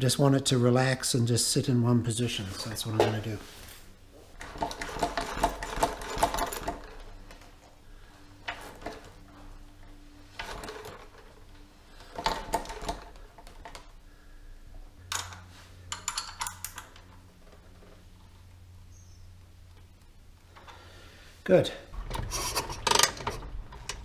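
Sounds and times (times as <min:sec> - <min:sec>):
motorcycle forks clattering: 0:04.4 - 0:07.5, 0:15.1 - 0:17.3, 0:22.2 - 0:24.0
small metallic clicks: 0:15.1 - 0:18.6.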